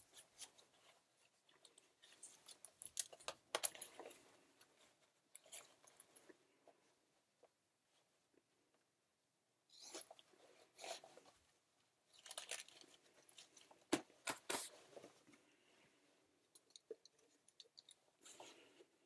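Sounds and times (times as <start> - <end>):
fabric rustling and crinkling: 9.8 - 15.8.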